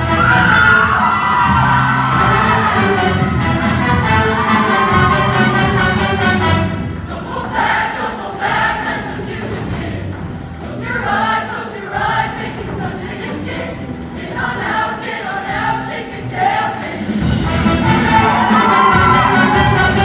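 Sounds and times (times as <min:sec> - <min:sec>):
live band playing: 0:02.1 - 0:07.0, 0:17.2 - 0:20.0
choir singing in unison: 0:03.8 - 0:20.0.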